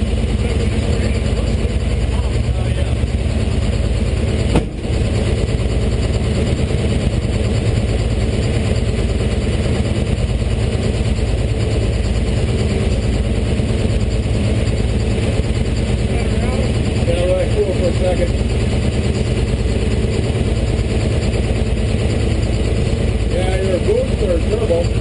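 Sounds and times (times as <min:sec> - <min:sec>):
diesel engine idling: 0:00.0 - 0:25.0
sharp knock: 0:04.5 - 0:05.0.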